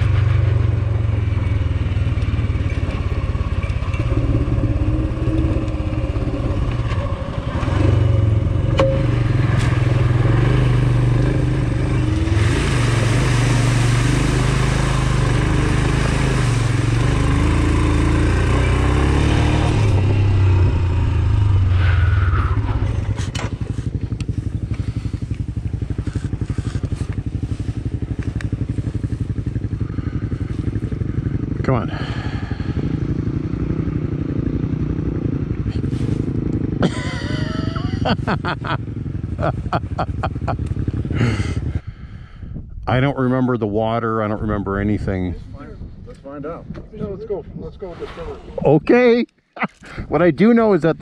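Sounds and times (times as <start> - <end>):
motorcycle engine: 0.0 - 42.4
wind rushing: 19.5 - 23.6.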